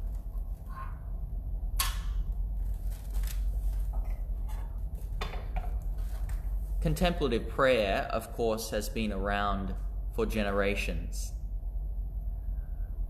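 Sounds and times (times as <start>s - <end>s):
steady low hum: 0.0s - 13.0s
handling rustles and clicks: 2.6s - 6.6s.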